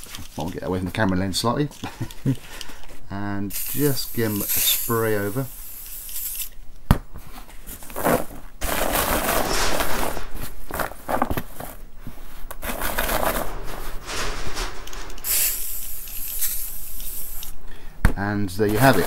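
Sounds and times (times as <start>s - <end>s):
screws rattling in cloth: 12.6s - 17.6s.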